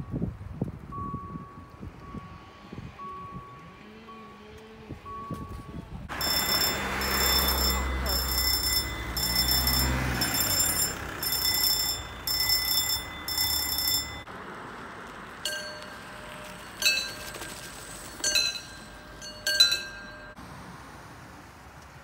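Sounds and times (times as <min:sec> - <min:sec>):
high bell dings: 0:05.1 - 0:14.3, 0:15.5 - 0:20.4
level crossing bell ringing: 0:05.1 - 0:14.3, 0:15.4 - 0:20.4.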